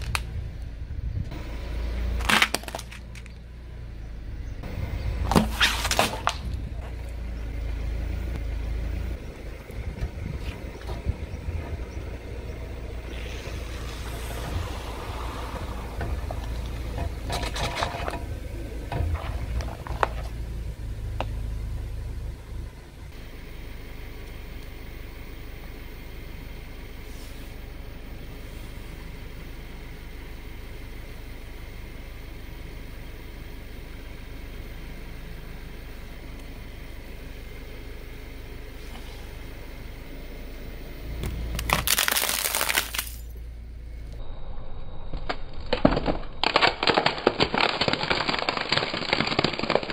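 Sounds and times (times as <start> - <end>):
steady low hum: 0.0 - 46.8
loud crunching: 2.1 - 3.4, 41.2 - 43.4, 45.6 - 49.9
plastic bottle crackling under tyre: 2.2 - 3.4, 5.2 - 7.0, 15.6 - 20.5, 41.2 - 43.3, 45.6 - 49.9.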